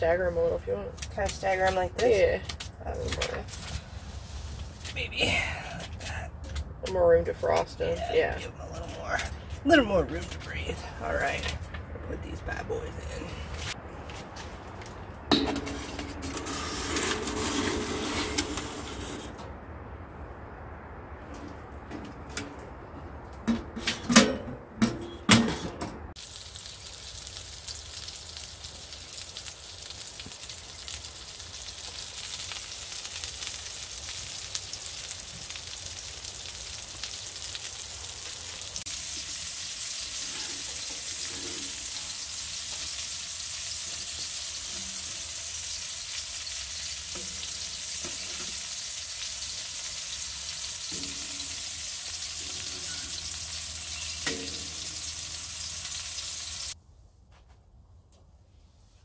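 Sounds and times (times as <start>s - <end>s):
metal stove door clanks: 23.5s - 26.0s, 54.2s - 54.8s
meat sizzling in a frying pan: 26.2s - 56.8s.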